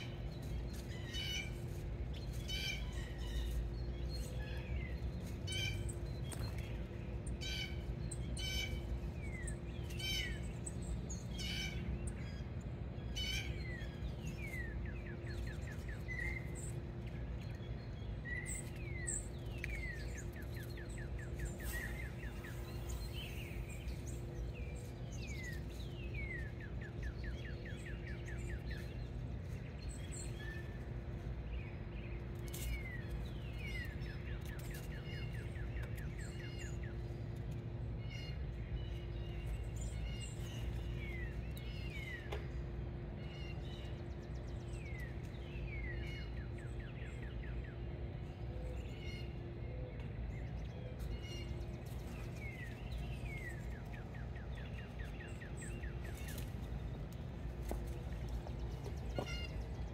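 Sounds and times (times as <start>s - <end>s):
small songbirds chirping: 0.0s - 59.9s
steady low hum: 0.0s - 59.9s
bird trills: 58.5s - 59.9s.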